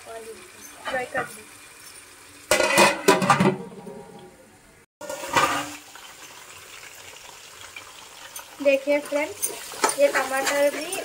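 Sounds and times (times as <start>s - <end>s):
food sizzling: 0.0s - 11.0s
metal lid clattering on pot: 2.5s - 3.7s, 5.0s - 5.8s.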